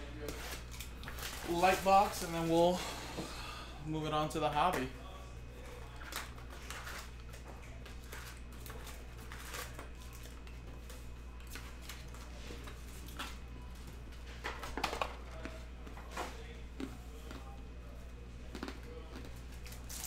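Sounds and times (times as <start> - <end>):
low electrical hum: 0.0 - 20.0
foil packs crinkling and rustling: 0.3 - 2.8.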